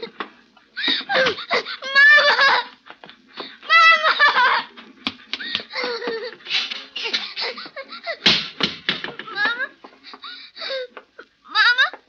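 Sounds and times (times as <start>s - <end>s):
person laughing and giggling: 0.8s - 8.3s.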